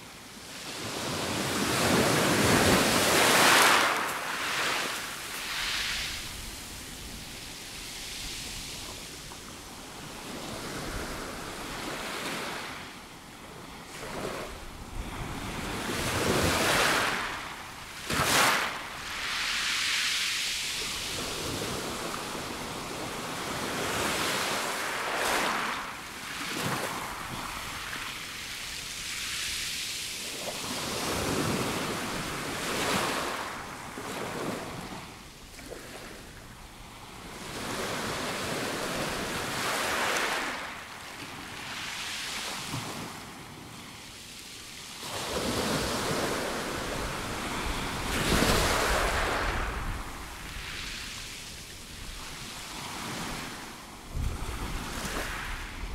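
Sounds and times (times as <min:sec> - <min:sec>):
waves washing over pebble beach: 0:00.5 - 0:12.6, 0:15.2 - 0:28.4, 0:44.9 - 0:55.9.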